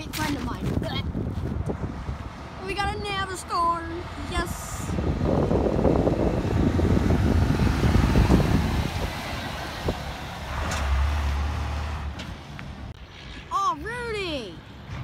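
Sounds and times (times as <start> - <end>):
dump truck driving past: 3.3 - 13.6.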